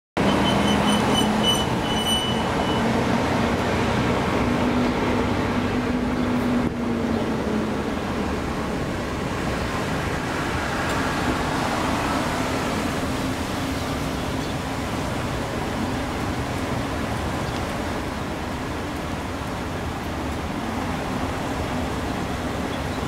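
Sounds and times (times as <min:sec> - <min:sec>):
high-pitched squeal: 0:00.2 - 0:03.1
cars passing and idling: 0:00.2 - 0:23.0.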